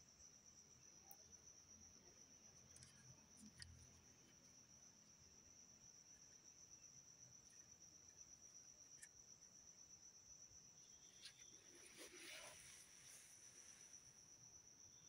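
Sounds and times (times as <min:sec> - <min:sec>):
faint ticks: 0:01.0 - 0:01.3, 0:02.6 - 0:04.5, 0:07.4 - 0:09.2
soft rustle: 0:11.0 - 0:14.3.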